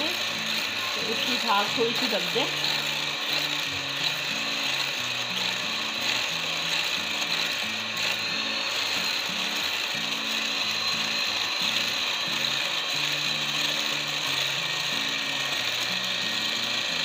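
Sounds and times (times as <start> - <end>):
electric hand mixer whisking: 0.0 - 17.0.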